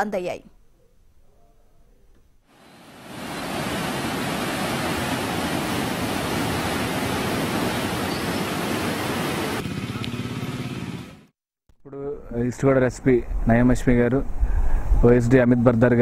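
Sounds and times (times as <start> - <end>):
floodwater rushing in river: 2.6 - 11.0.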